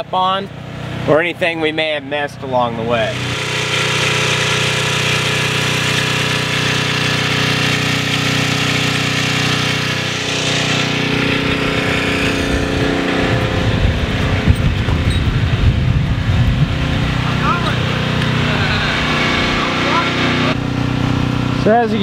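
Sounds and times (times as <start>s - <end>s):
electric motor humming: 2.9s - 22.0s
wind buffeting microphone: 11.3s - 17.4s.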